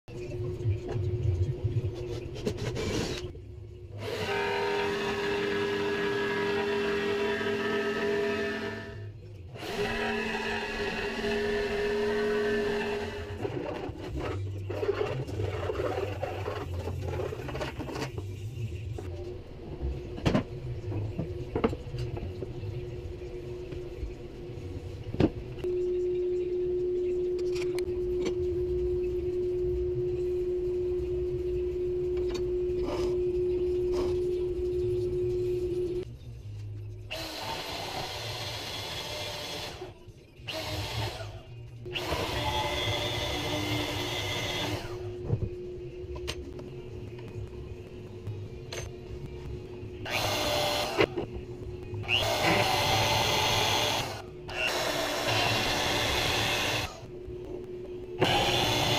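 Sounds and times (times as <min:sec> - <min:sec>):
power tool motor running: 0:42.0 - 0:45.0, 0:50.1 - 0:51.1, 0:52.1 - 0:57.0, 0:58.2 - 0:58.9.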